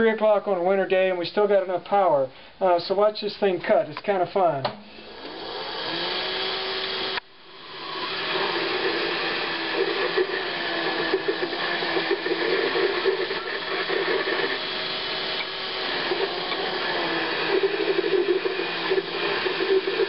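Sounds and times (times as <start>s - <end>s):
lathe motor whirring: 5.0s - 20.0s.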